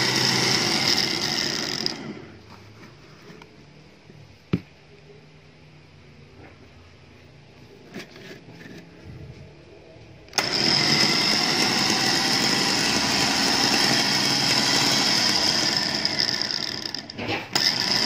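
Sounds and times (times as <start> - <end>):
electric winch whining: 0.0 - 2.3, 10.3 - 18.0.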